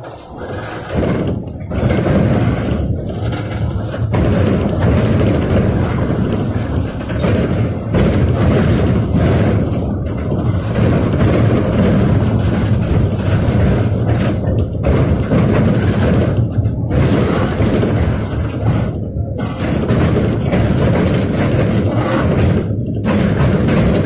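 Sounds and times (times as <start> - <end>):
tram wheels rumbling on rails: 0.0 - 24.0.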